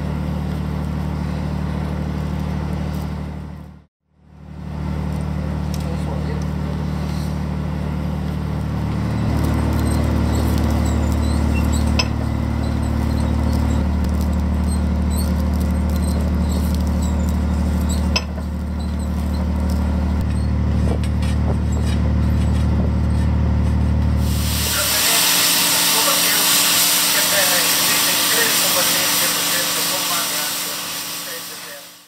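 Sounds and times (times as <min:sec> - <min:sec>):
boat diesel engine humming: 0:04.5 - 0:32.0
rope squeaks and clicks: 0:09.0 - 0:23.8.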